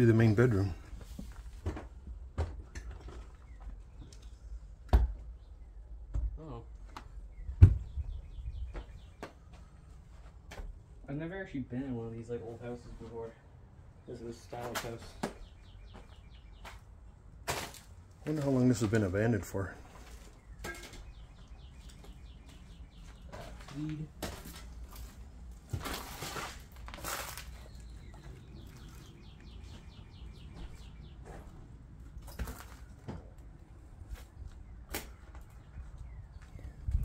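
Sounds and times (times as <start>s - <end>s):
faint birds chirping: 0.0s - 25.8s, 26.9s - 37.0s
footsteps and scuffs in a room: 8.7s - 10.8s, 14.8s - 16.9s, 21.5s - 33.2s.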